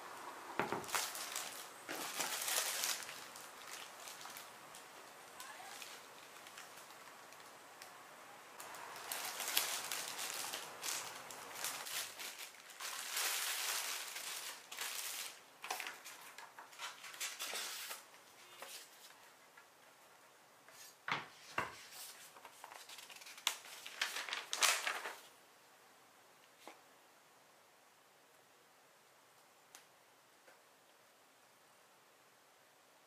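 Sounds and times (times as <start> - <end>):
plastic film crinkling: 0.6 - 19.2, 22.0 - 25.3.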